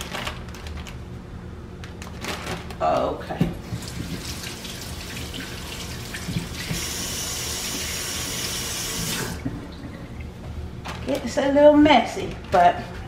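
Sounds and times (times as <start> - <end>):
faucet running water into sink: 3.7 - 9.4.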